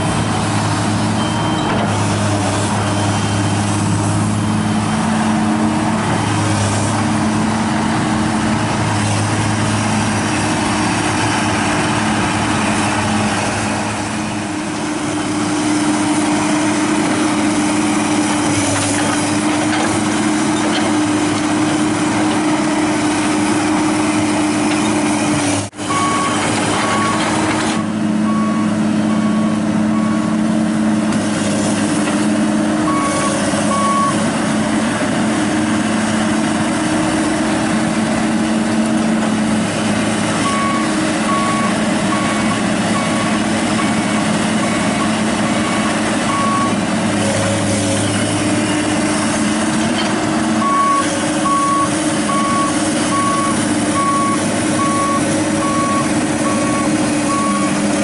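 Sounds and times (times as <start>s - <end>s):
diesel engine running under load: 0.0s - 58.0s
travel alarm beeping: 1.2s - 1.7s, 44.7s - 46.8s.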